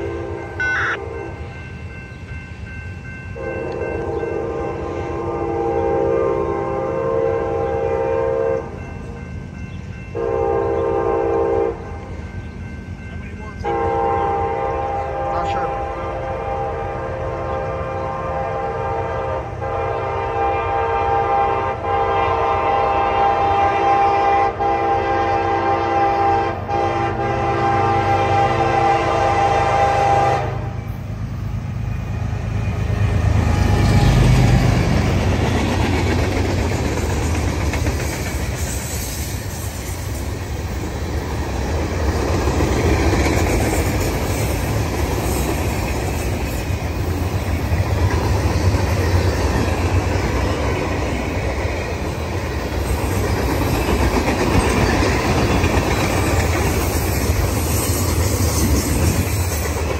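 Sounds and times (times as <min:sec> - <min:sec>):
locomotive horn chord: 0:00.0 - 0:01.6, 0:03.4 - 0:08.9, 0:10.1 - 0:12.0, 0:13.6 - 0:30.9
locomotive rumbling past: 0:00.0 - 0:59.9.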